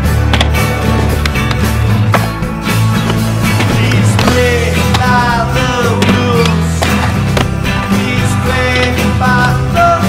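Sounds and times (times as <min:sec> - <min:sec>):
music with heavy bass: 0:00.0 - 0:10.0
skateboard clacks: 0:00.2 - 0:07.9.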